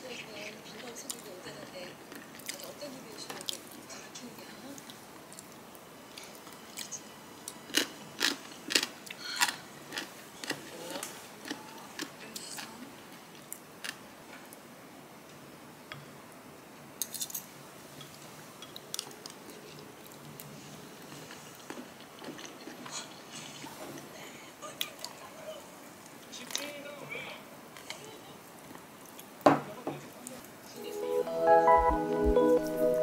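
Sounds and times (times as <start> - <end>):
food crunches and clicks: 4.8 - 12.7.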